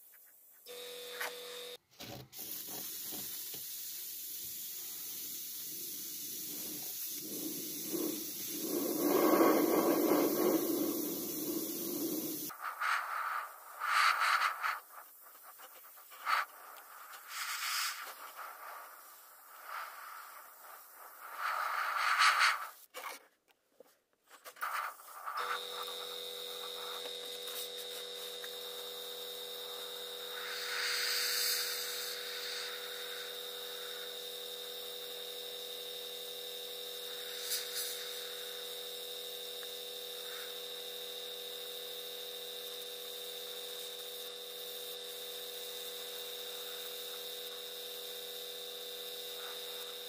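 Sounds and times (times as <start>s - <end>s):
air compressor humming: 0.7s - 12.5s, 25.3s - 50.0s
airbrush hissing: 2.4s - 22.9s, 24.6s - 50.0s.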